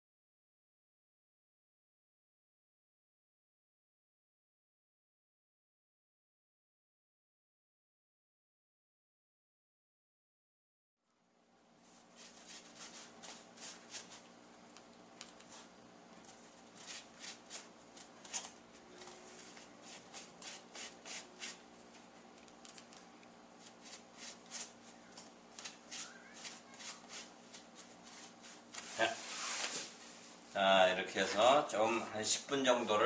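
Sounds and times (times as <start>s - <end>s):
faint steady hum: 11.0s - 33.0s
brush strokes on foam: 11.8s - 14.3s, 15.4s - 22.0s, 23.6s - 25.0s, 25.6s - 31.7s, 32.6s - 33.0s.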